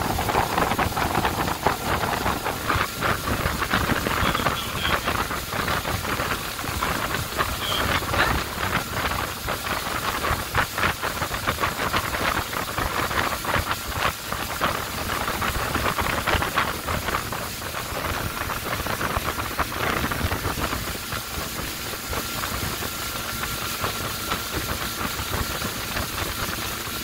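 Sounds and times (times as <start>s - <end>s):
boat engine running: 0.0s - 27.0s
wake water churning and spraying: 0.0s - 27.0s
wind on microphone: 0.0s - 27.0s.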